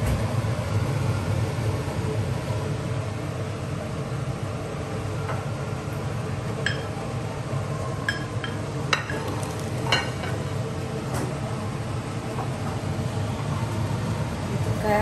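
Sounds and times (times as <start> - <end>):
steady low hum: 0.0 - 15.0
ceramic bowl and utensils clinking: 8.1 - 10.4.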